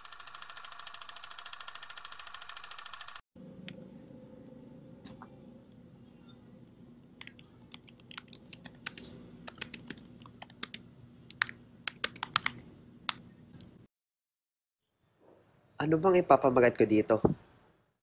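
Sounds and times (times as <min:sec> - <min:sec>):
faint steady hum: 0:03.4 - 0:13.9
keyboard typing clicks: 0:07.2 - 0:13.2.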